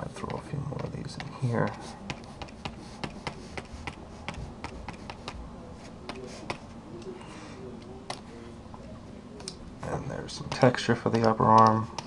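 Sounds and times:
stylus tapping on graphics tablet: 0:00.2 - 0:05.4, 0:06.0 - 0:06.7, 0:10.4 - 0:12.0.

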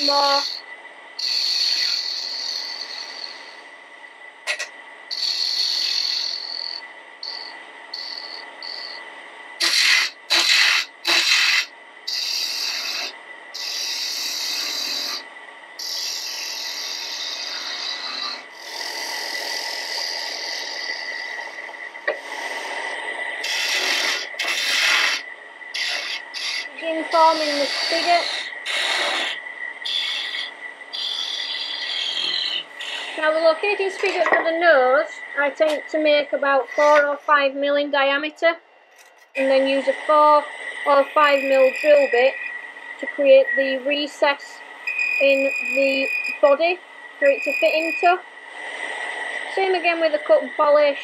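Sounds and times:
gouge scraping spinning wood: 0:00.0 - 0:00.6, 0:01.2 - 0:03.6, 0:04.5 - 0:09.0, 0:09.6 - 0:15.2, 0:15.8 - 0:35.8
faint steady whine: 0:00.0 - 0:51.0.

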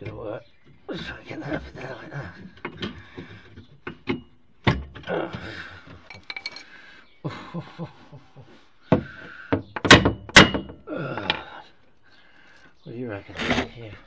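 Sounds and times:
sharp knocks: 0:08.9 - 0:10.8.

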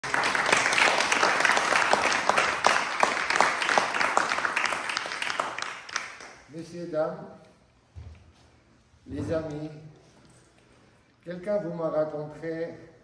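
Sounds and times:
group of people applauding: 0:00.0 - 0:06.5.

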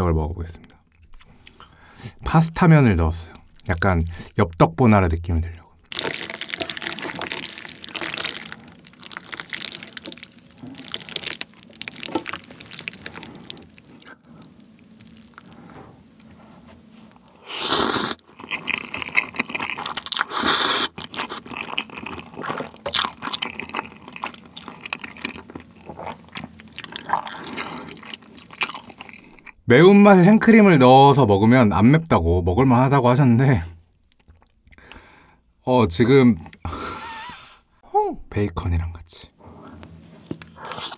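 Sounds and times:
wet chewing: 0:00.7 - 0:01.9, 0:05.8 - 0:29.6, 0:33.9 - 0:35.0, 0:39.6 - 0:40.9
loud noodle slurps: 0:05.9 - 0:13.9, 0:17.4 - 0:23.2.

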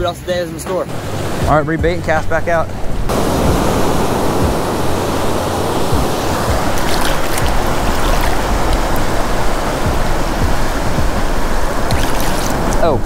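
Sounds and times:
breaking waves: 0:00.9 - 0:13.0
swash rushing and fizzing: 0:03.1 - 0:12.9.

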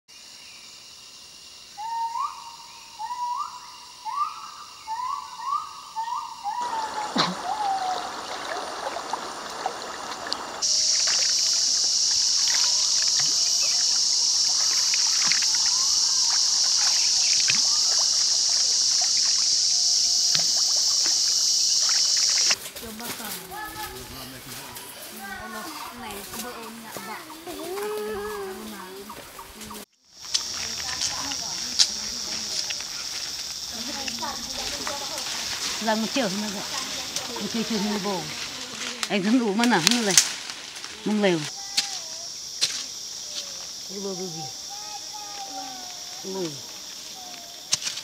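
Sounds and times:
rising whooping calls: 0:01.8 - 0:22.6
splashes and knocks of pole: 0:06.6 - 0:11.4
river water rushing: 0:06.6 - 0:22.6.

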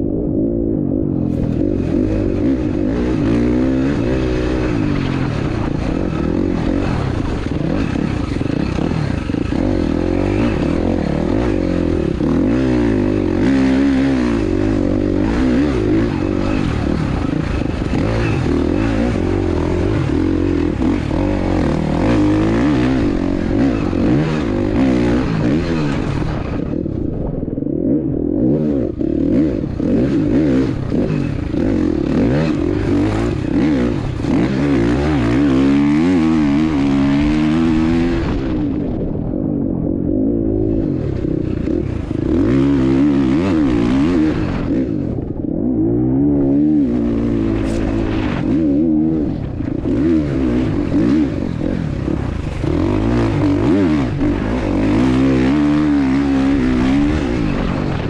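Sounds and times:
motorcycle engine revving: 0:00.0 - 0:58.0
steady rush of noise: 0:00.0 - 0:58.0.

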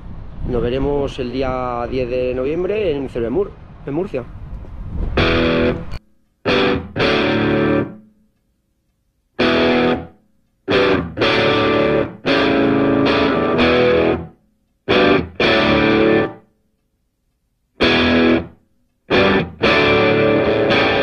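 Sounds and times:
distorted electric guitar chords: 0:05.2 - 0:08.1, 0:09.4 - 0:16.4, 0:17.8 - 0:21.0.

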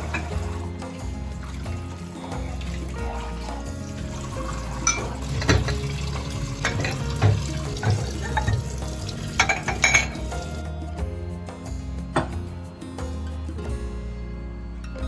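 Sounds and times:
tap water running into sink: 0:00.0 - 0:10.6
dishes clinking: 0:04.8 - 0:10.6.

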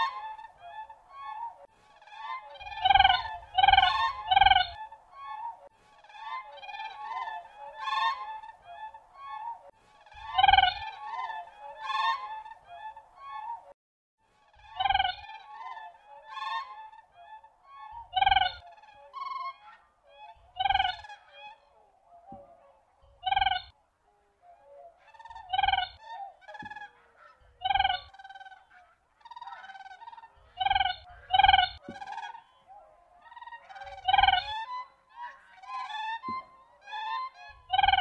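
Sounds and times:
cranes calling: 0:00.0 - 0:13.6, 0:14.5 - 0:38.0.

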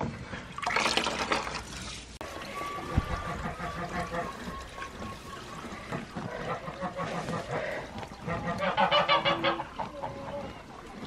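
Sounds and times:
geese honking: 0:02.2 - 0:11.0.

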